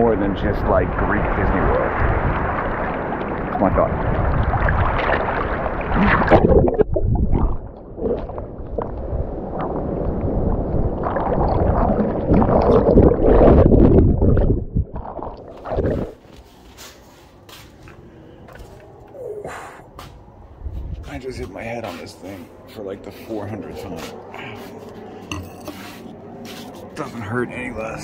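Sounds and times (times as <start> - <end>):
water sloshing and splashing: 0.4 - 19.2.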